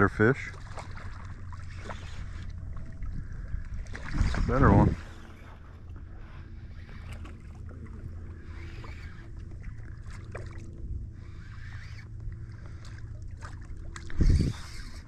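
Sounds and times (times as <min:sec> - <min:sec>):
low steady hum: 0:00.0 - 0:15.0
water sloshing and splashing: 0:00.0 - 0:15.0.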